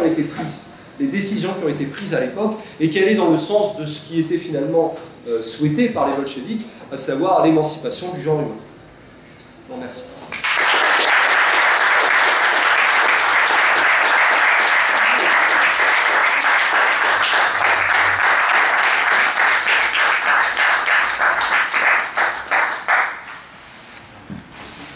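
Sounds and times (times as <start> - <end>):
audience applauding: 10.3 - 23.3.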